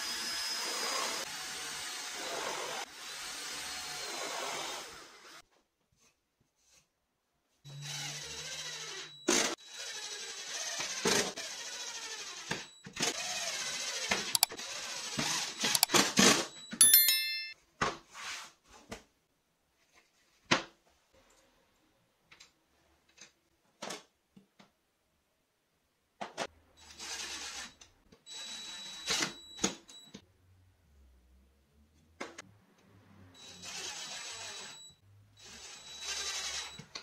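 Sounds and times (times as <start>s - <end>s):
cordless drill boring into wood: 0.0s - 5.4s, 7.8s - 16.0s, 33.4s - 34.8s, 35.4s - 36.8s.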